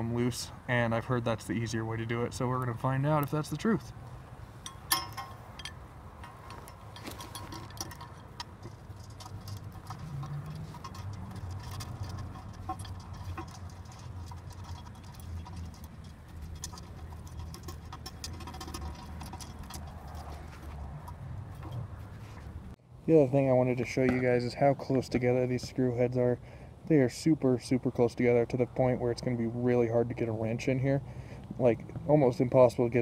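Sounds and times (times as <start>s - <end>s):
metallic clicks of bolts and washers: 4.6s - 22.0s.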